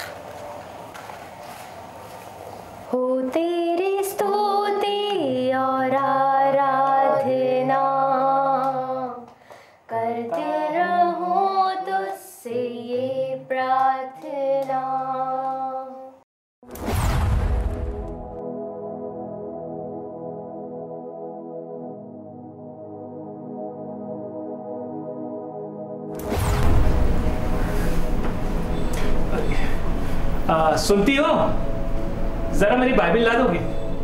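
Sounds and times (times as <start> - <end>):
voices singing a worship song: 3.0 - 9.3, 9.9 - 16.1.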